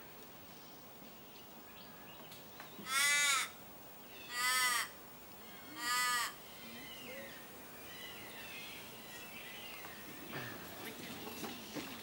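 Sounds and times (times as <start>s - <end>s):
crow cawing: 2.9s - 3.6s, 4.3s - 5.0s, 5.8s - 6.5s.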